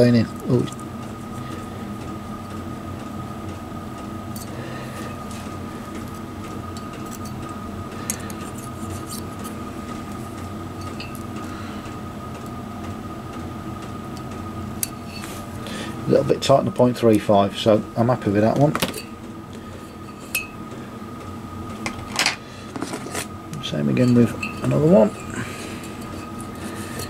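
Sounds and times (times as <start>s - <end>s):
background hum with high whine: 0.0s - 27.0s
feeler gauge ticking and scraping: 23.5s - 27.0s.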